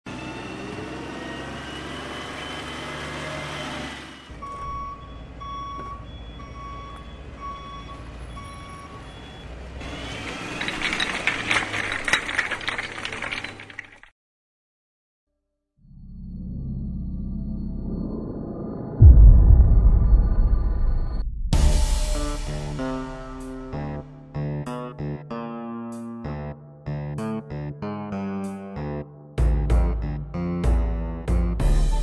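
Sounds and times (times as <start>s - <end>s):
reversing alarm beeping: 4.0s - 9.5s
rocks clattering out of truck: 10.2s - 14.1s.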